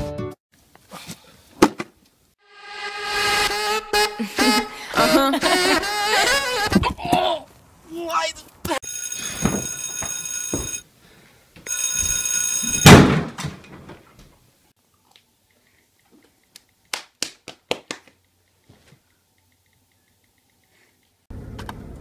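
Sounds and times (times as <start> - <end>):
electronic ringing tone: 8.8 - 10.8, 11.7 - 12.9
loud thud: 12.8 - 13.6.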